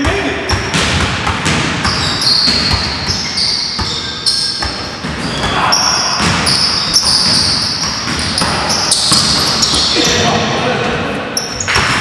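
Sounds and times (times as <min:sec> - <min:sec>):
basketball dribbling on wood floor: 0:00.0 - 0:05.6, 0:06.2 - 0:09.9
sneakers squeaking: 0:00.0 - 0:12.0.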